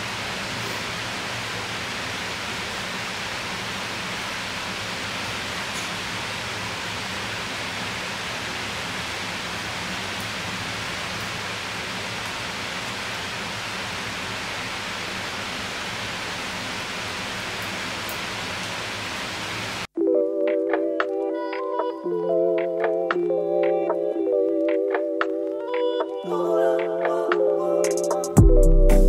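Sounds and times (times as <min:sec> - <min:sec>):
rain hissing: 0:00.0 - 0:19.9
music: 0:20.0 - 0:29.0.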